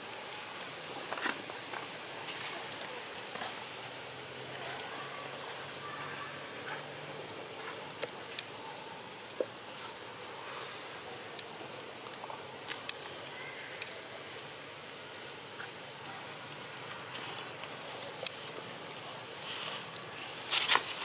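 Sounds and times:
outdoor background hiss: 0.0s - 21.0s
sharp clicks over dry twigs: 0.2s - 3.7s, 10.9s - 16.0s, 16.8s - 21.0s.

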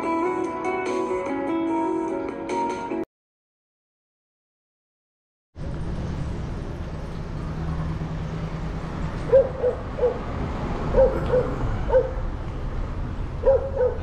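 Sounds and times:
dog barking: 9.3s - 10.3s, 10.9s - 12.2s, 13.4s - 14.0s.

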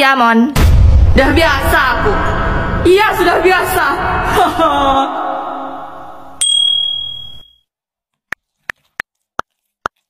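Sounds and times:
bright bell ding: 6.4s - 7.6s.

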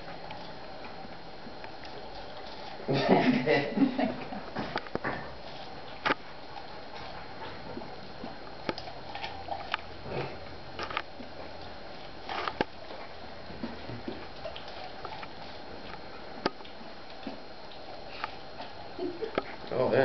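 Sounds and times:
dog gnawing corn cob: 0.0s - 2.9s, 4.6s - 19.9s
teeth snapping: 8.7s - 9.9s.

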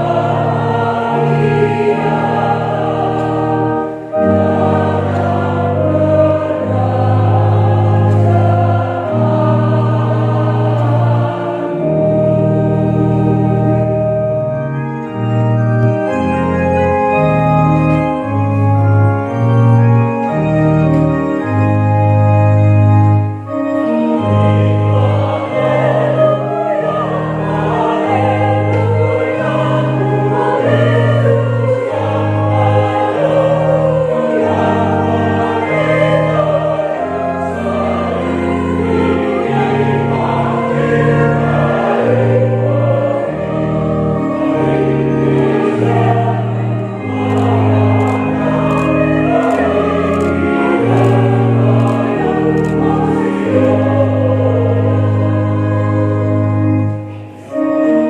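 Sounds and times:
choir singing a hymn: 0.0s - 58.0s
electronic organ chords: 0.0s - 58.0s.

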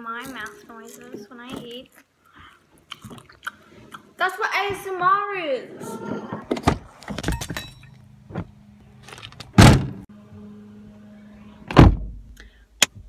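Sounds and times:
loud thump: 9.6s - 10.0s, 11.7s - 12.2s.

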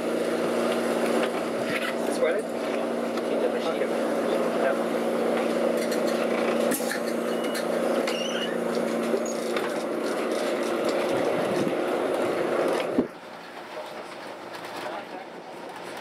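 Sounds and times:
tram electric motor hum: 0.0s - 16.0s.

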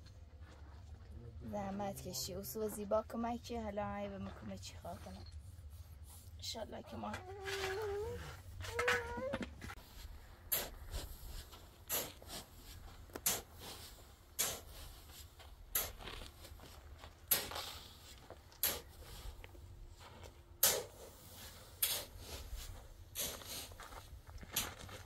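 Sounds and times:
shovel chopping into sand: 10.5s - 11.1s, 11.9s - 12.5s, 13.1s - 13.8s, 14.4s - 14.9s, 15.7s - 16.3s, 17.3s - 17.9s, 18.6s - 19.0s, 20.6s - 21.1s, 21.8s - 22.4s.

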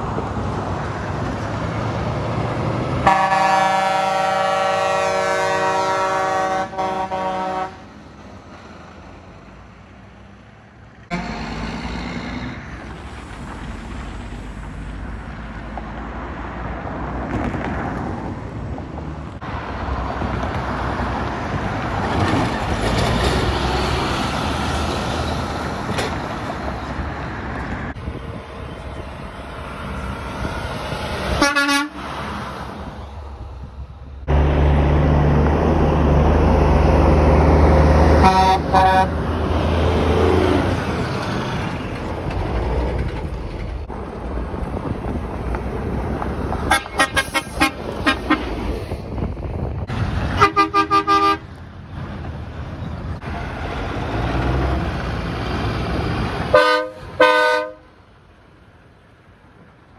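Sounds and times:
car road noise: 0.0s - 59.9s
diesel truck engine passing: 0.0s - 59.9s
truck air horn blasts: 3.0s - 7.8s, 31.3s - 32.1s, 38.1s - 39.2s, 46.7s - 48.6s, 50.4s - 51.5s, 56.5s - 58.0s.

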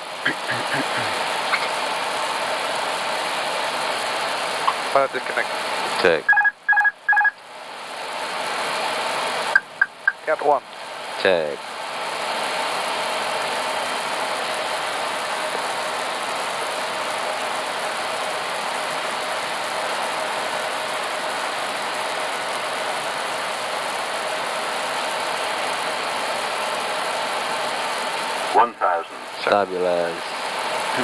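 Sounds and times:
aircraft engine noise: 9.3s - 10.4s, 28.1s - 29.6s
airflow over cockpit: 9.4s - 10.5s, 28.4s - 29.6s.

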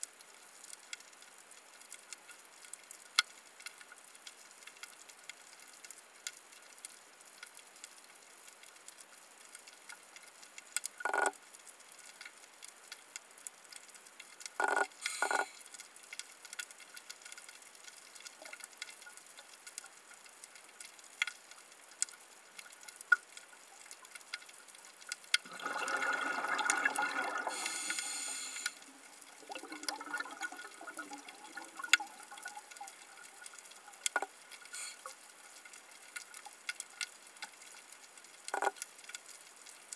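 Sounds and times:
crackle of small sharp clicks: 0.0s - 25.5s, 27.8s - 39.9s
bubbles rushing underwater: 25.4s - 28.1s, 28.9s - 33.3s.

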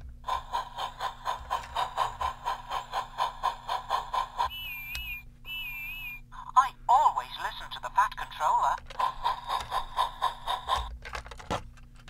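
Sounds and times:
toy steam chuffing: 0.1s - 6.2s, 7.2s - 11.0s
electronic whistle toots: 4.5s - 6.2s.

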